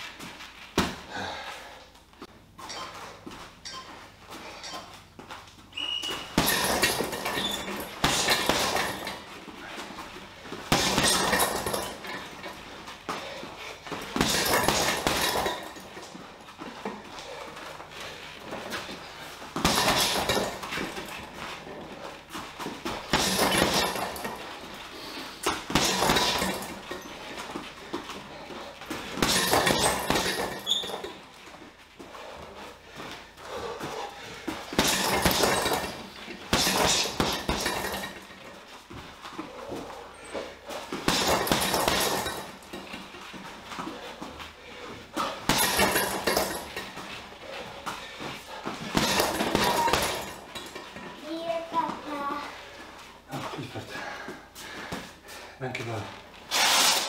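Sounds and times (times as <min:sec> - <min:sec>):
gloves punching heavy bag: 0:05.8 - 0:31.4, 0:32.0 - 0:51.1.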